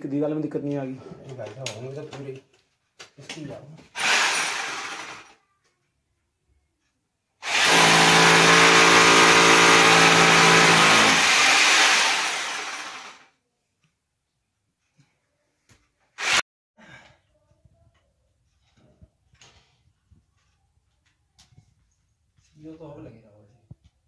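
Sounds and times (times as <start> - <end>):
electric drill motor running: 4.0 - 5.4, 7.4 - 13.3, 16.2 - 16.4.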